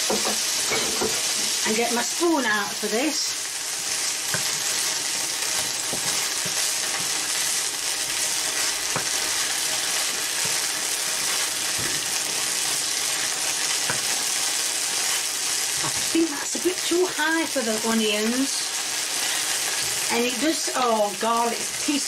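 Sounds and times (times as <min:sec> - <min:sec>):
onions sizzling in oil: 0:00.0 - 0:22.0
wooden spoon knocking pan: 0:08.9 - 0:09.3, 0:13.8 - 0:14.2.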